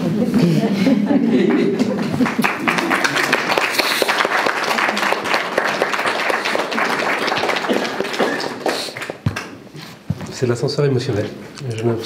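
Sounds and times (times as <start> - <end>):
hands clapping: 1.4 - 9.6.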